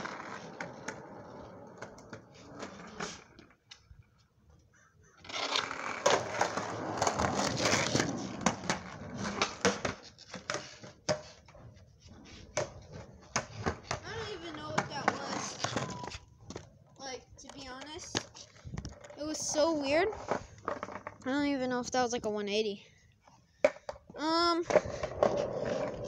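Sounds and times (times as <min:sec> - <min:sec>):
skateboard wheels rumbling: 0:00.0 - 0:04.4, 0:05.2 - 0:21.8, 0:24.6 - 0:26.0
skateboard clacks and knocks: 0:05.2 - 0:16.7.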